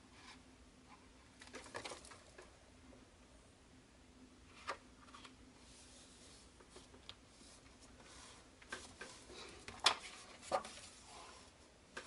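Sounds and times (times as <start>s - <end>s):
paper rubbing: 5.6s - 11.6s.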